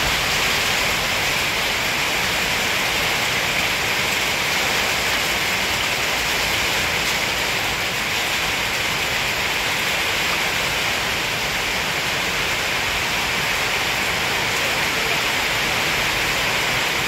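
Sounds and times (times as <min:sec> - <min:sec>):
steady rushing noise: 0:00.0 - 0:04.5.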